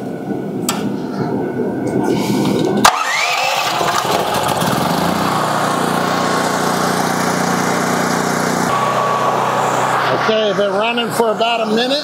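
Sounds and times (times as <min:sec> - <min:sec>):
generator engine running: 0:02.6 - 0:12.0.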